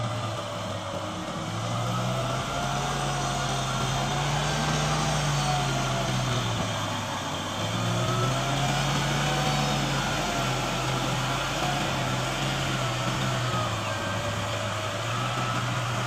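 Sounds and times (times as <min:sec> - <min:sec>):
tractor diesel engine running: 0:00.0 - 0:16.0.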